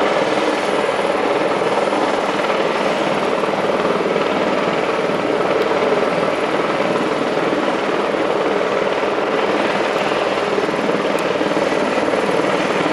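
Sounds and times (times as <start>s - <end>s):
helicopter rotor chopping: 0.0s - 12.9s.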